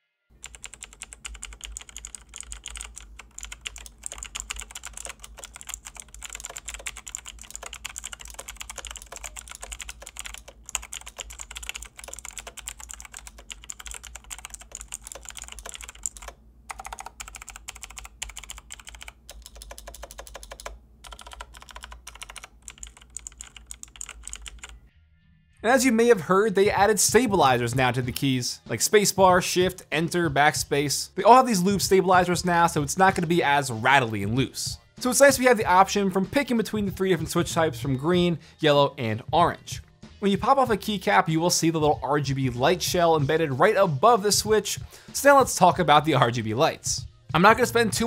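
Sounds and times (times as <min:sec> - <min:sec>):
clicky mechanical keyboard typing: 0:00.4 - 0:24.8.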